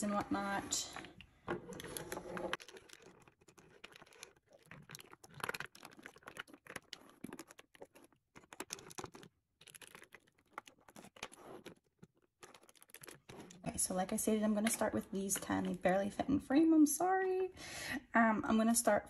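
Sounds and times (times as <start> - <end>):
case scraping over wood: 0.4 - 13.8.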